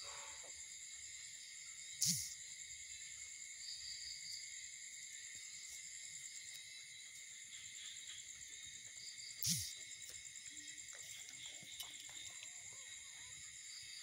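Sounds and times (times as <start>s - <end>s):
crickets chirring: 0.0s - 14.0s
small squeaks: 9.4s - 9.8s.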